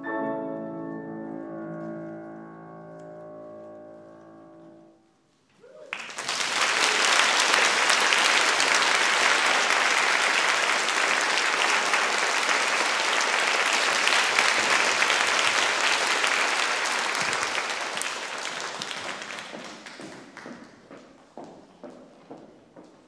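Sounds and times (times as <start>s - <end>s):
audience applauding: 5.9s - 20.8s
footsteps on wooden floor: 19.5s - 23.0s.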